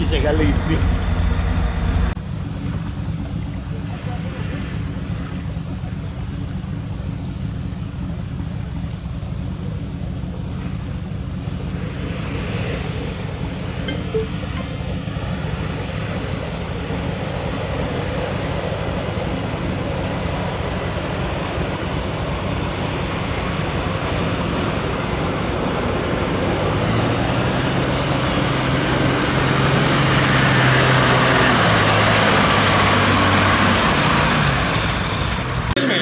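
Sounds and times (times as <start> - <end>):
diesel truck engine: 0.0 - 36.0
mud and water splashing: 10.3 - 36.0.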